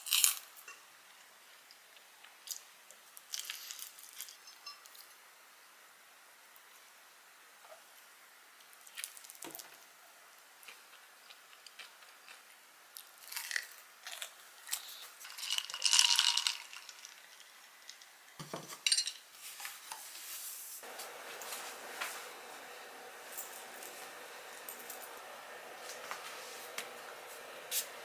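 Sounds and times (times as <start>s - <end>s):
cutlery and dishes clinking: 4.2s - 5.1s.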